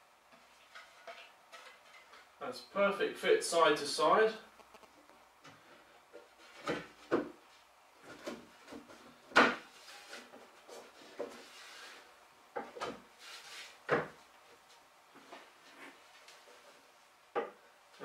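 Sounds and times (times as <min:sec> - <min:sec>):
wood sliding rub: 0:09.7 - 0:12.1.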